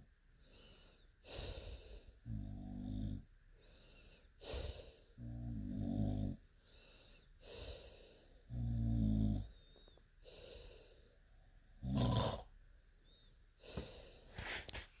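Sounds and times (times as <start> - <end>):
soft airy breaths: 0.0 - 11.8, 12.9 - 15.0
deep rumbling snores: 2.2 - 3.3, 5.2 - 6.4, 8.5 - 9.6, 11.8 - 12.5.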